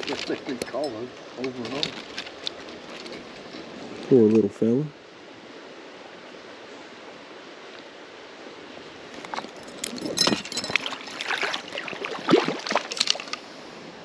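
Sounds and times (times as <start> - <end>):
water splashing and sloshing: 0.0 - 4.0, 8.8 - 13.8
creek water running: 0.0 - 14.0.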